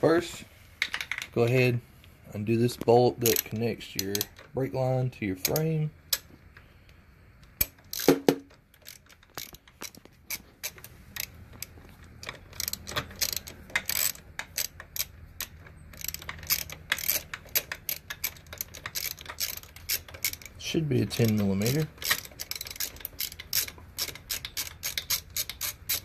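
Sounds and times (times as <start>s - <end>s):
ratchet wrench clicking: 3.2s - 4.5s, 7.6s - 26.0s.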